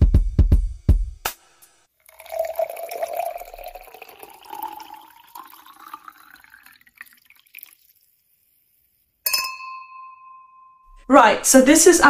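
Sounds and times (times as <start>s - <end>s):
wine pouring into glass: 2.0s - 8.9s.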